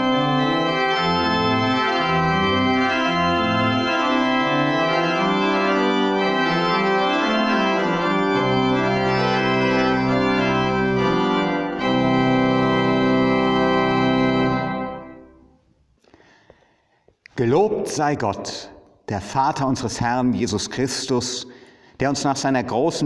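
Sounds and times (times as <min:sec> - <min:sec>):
pipe organ chords: 0:00.0 - 0:16.0.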